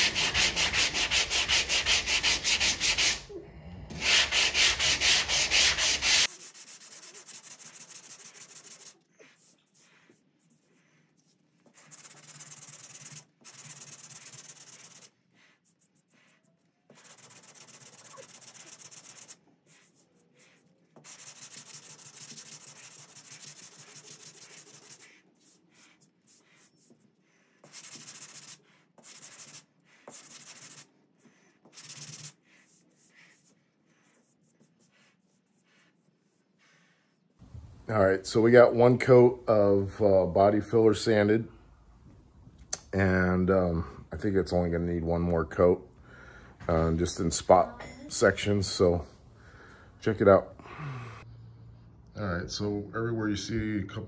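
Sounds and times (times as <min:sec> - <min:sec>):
hand sanding with a block: 0:00.0 - 0:03.2, 0:03.9 - 0:37.3.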